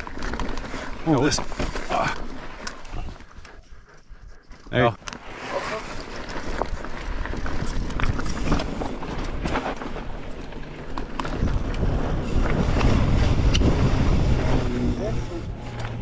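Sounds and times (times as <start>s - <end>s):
bike tyres crunching over rock: 0.0s - 2.6s, 5.3s - 14.7s
bike rattling: 0.0s - 16.0s
wind rumbling on microphone: 6.0s - 16.0s.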